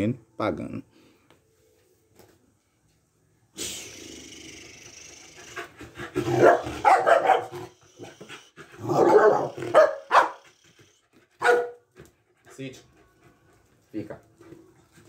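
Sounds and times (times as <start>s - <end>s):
faint hiss: 3.6s - 5.7s
dog barking excitedly: 5.6s - 10.6s, 11.4s - 11.9s.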